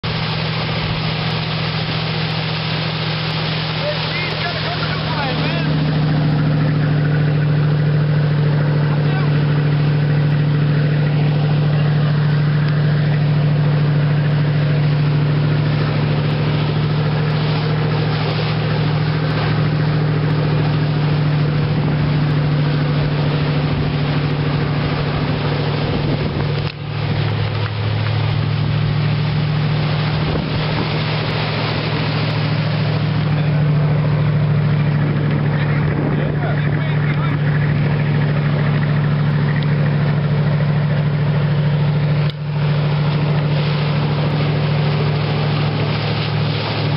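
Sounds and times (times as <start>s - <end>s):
motorboat engine running: 0.0s - 46.9s
water rushing: 0.0s - 46.9s
wind noise on microphone: 25.0s - 27.1s, 30.1s - 31.2s, 34.9s - 36.6s.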